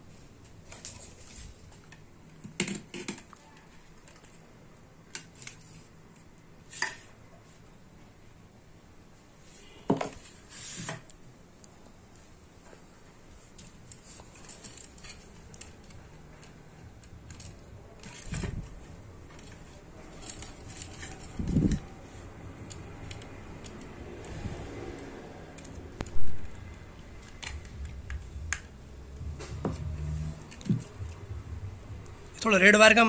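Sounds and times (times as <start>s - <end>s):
small clicks and clinks of wires: 13.5s - 21.9s.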